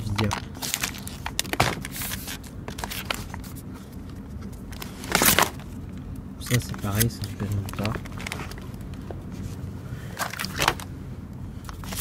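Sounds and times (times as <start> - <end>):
food packaging rustling and knocking: 0.1 - 3.5.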